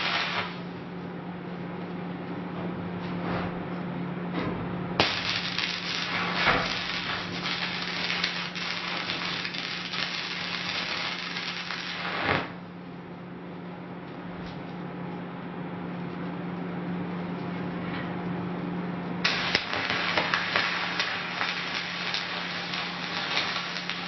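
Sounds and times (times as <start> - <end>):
arc welding crackling: 0.0 - 0.8, 5.0 - 12.6, 19.2 - 24.0.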